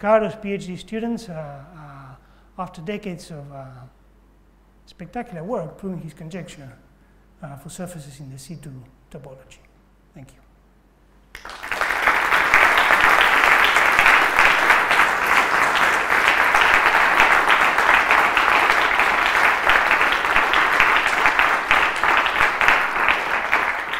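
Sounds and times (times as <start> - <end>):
audience applauding: 11.4 - 23.9.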